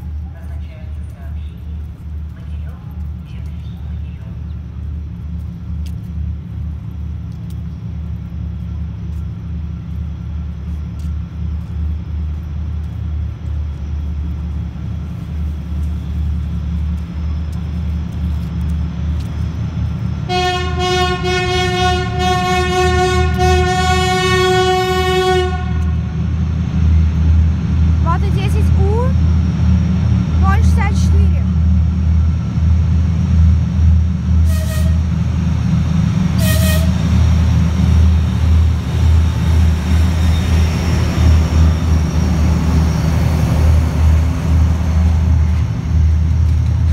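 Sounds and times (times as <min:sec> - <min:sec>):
diesel locomotive engine rumble: 0:00.0 - 0:46.9
long train horn blast: 0:20.3 - 0:26.2, 0:34.4 - 0:35.1, 0:36.4 - 0:37.1.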